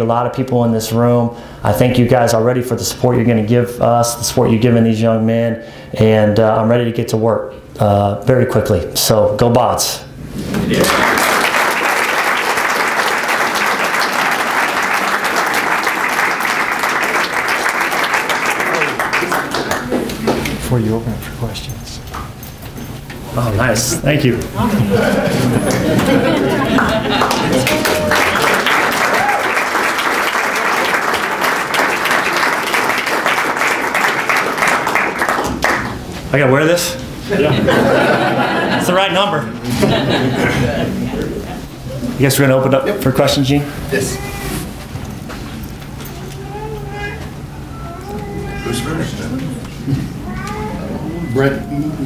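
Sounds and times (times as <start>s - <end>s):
audience applauding: 10.7s - 20.5s, 25.4s - 36.0s.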